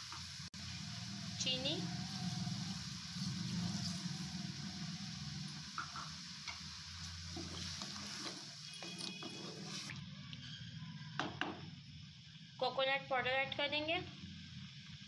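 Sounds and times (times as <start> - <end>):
milk simmering with hiss: 0.0 - 15.0
spatula scraping and knocking pan: 7.3 - 9.9.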